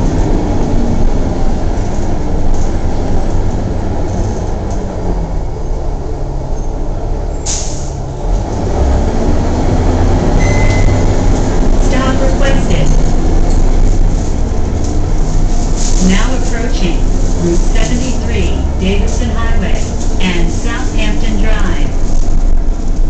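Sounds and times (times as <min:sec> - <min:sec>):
bus diesel engine: 0:00.0 - 0:23.0
road rumble: 0:00.0 - 0:23.0.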